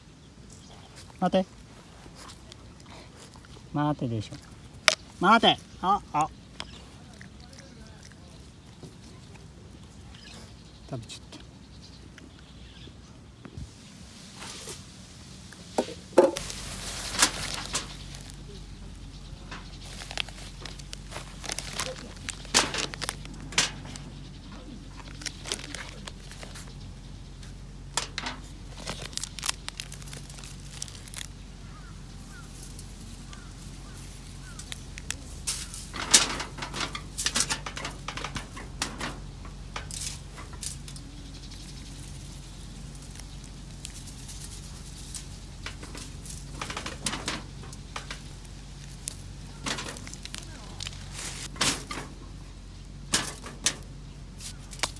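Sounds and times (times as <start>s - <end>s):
aluminium foil rustling: 16.0s - 52.3s, 52.9s - 54.9s
plastic packet crinkling: 19.8s - 24.0s, 25.0s - 26.7s, 28.5s - 32.4s, 47.5s - 51.5s.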